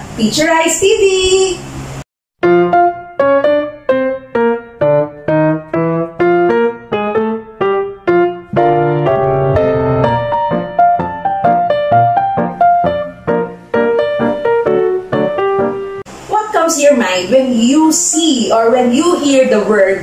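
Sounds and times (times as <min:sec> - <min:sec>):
keyboard melody: 0:02.4 - 0:16.1.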